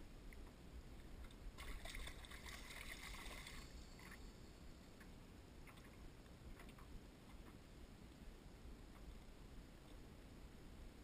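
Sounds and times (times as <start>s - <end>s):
low steady rumble: 0.0s - 11.0s
fish splashing in water: 1.6s - 4.2s.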